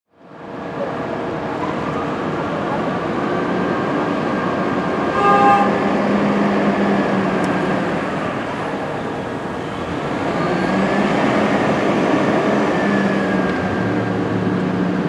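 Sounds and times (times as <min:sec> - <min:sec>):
street traffic: 0:00.1 - 0:15.0
short horn toot: 0:05.1 - 0:05.8.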